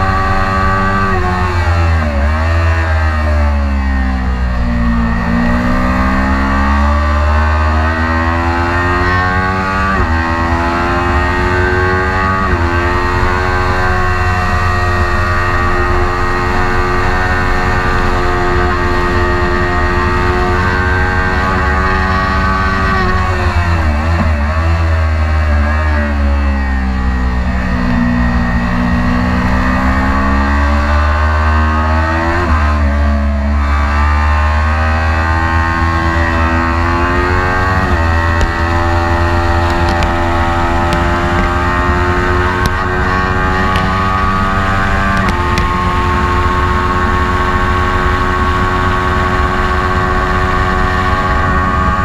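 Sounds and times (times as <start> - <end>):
motorcycle engine at full throttle: 0.0 - 52.0
wind rush on microphone: 9.0 - 24.7, 35.2 - 52.0.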